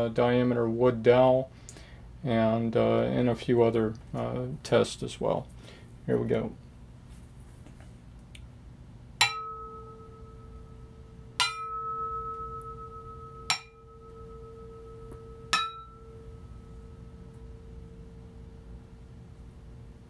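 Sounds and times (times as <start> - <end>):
turntable platter bell-like ring: 9.2 - 18.4.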